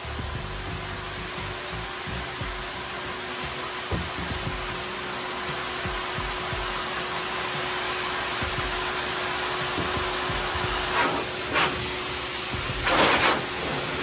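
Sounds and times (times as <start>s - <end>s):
steady rushing noise with hum: 5.8s - 14.0s
short hissing swishes: 12.8s - 13.9s.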